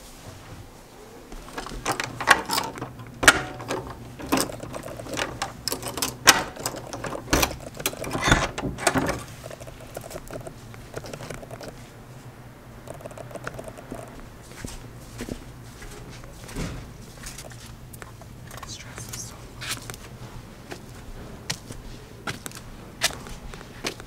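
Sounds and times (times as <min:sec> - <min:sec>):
metal door handle clicking: 0:01.4 - 0:10.4
key rattling in door lock: 0:01.4 - 0:11.7.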